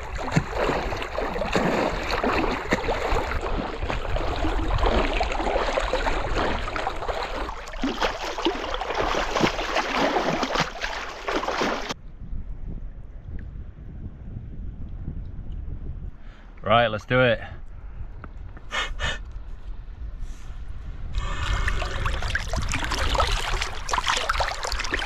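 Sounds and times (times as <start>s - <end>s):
seawater sloshing and splashing: 0.0s - 12.0s, 21.2s - 25.0s.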